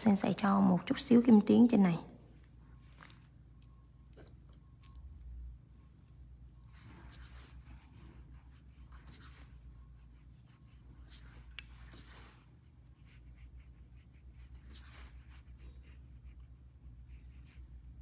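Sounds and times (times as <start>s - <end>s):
low steady hum: 0.0s - 18.0s
nail brush scratching: 6.7s - 18.0s.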